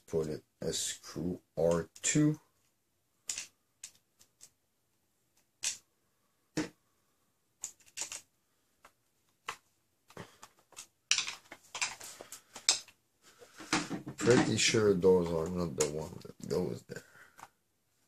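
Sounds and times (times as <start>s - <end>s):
plastic parts clicking: 1.6s - 4.6s, 5.3s - 5.8s, 7.6s - 13.0s
clattering and rustling of parts: 2.6s - 4.6s, 7.6s - 16.0s.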